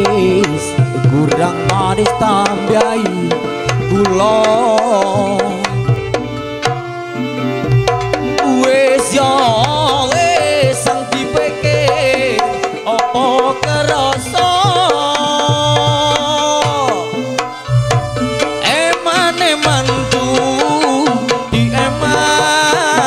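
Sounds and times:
hand drum strokes: 0.0s - 23.0s
wavering vibrato melody: 16.6s - 23.0s.

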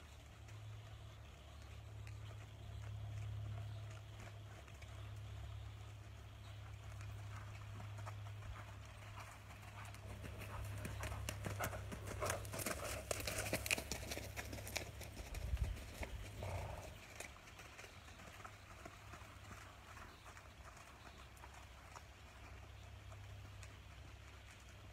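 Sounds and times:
horse hoofbeats on soft dirt: 0.0s - 24.9s
steady low hum: 1.8s - 17.3s.

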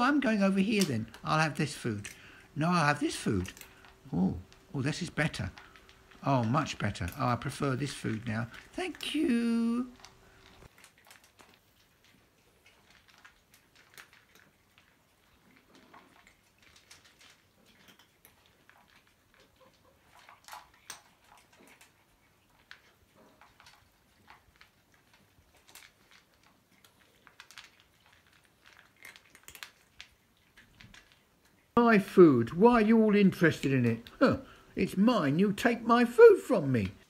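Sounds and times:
cats crunching dry kibble: 0.0s - 37.0s.

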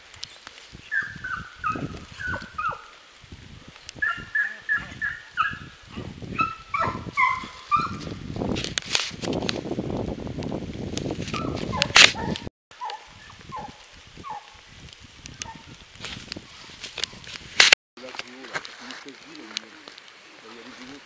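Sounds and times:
hounds yelping: 0.9s - 3.0s, 4.0s - 8.2s, 11.3s - 14.6s, 15.4s - 15.7s
footsteps through leaf litter: 15.7s - 21.0s.

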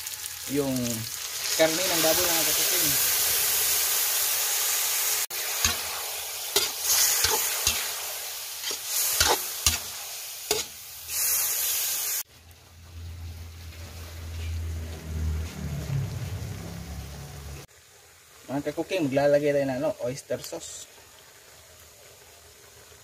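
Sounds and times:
meat sizzling in a wok: 0.0s - 23.0s
spatula scraping and knocking pan: 6.5s - 7.9s, 8.6s - 9.9s, 10.5s - 10.8s
low rumble: 12.8s - 17.7s.

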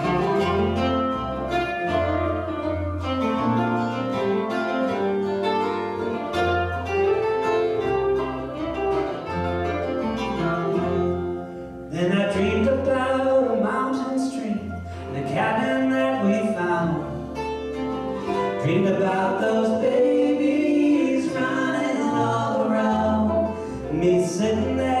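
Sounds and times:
acoustic guitar picking: 0.0s - 25.0s
plucked upright bass: 0.0s - 25.0s
man singing: 11.9s - 17.4s, 18.5s - 25.0s.

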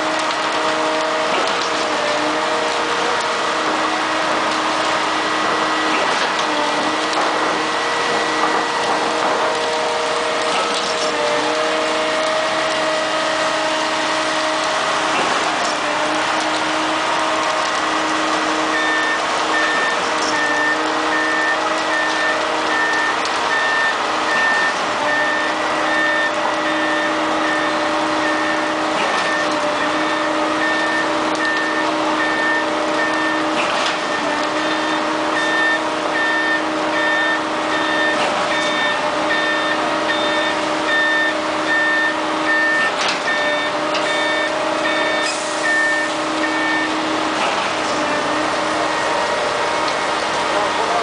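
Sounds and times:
diesel engine running: 0.0s - 51.0s
truck reversing alarm beeping: 0.6s - 51.0s.

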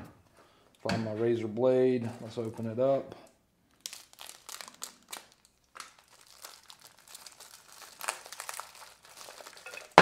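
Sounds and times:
plastic bag crinkling: 3.7s - 10.0s.

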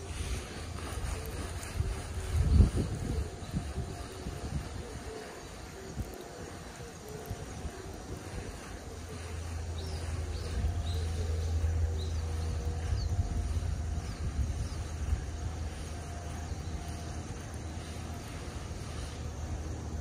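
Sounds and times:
low rumble on microphone: 0.0s - 20.0s.

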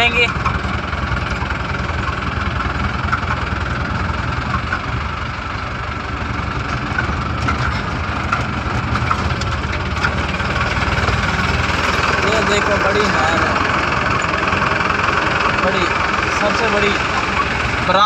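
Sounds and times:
truck engine rumble: 0.0s - 18.0s
tyres on rough dirt track: 0.0s - 18.0s
knocks and rattles: 6.4s - 18.0s.

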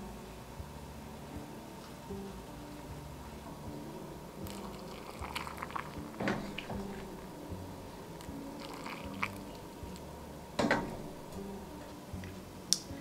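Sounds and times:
water pouring into jar: 4.4s - 7.2s, 8.6s - 10.0s.

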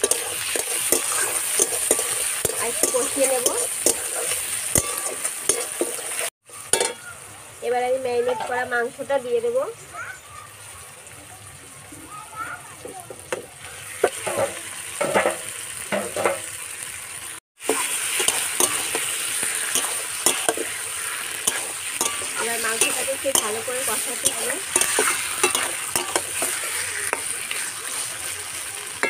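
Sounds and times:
metal spoon scraping a pan: 0.0s - 7.0s, 14.0s - 16.4s, 17.7s - 29.0s
meat sizzling in a wok: 0.0s - 29.0s.

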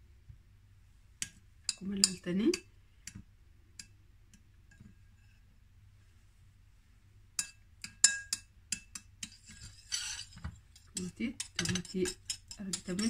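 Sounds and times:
spoon clinking and scraping bowl: 7.4s - 13.0s.

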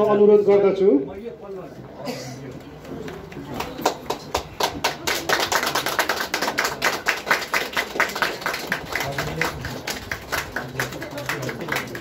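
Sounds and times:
audience applause: 3.2s - 12.0s.

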